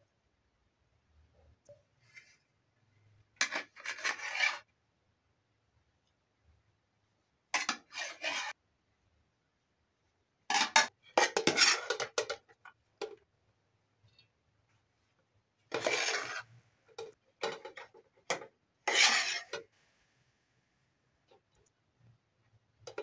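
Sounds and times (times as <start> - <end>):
metal spoon scraping metal pots: 3.4 - 4.6, 7.6 - 8.6, 10.5 - 12.4, 15.7 - 19.7.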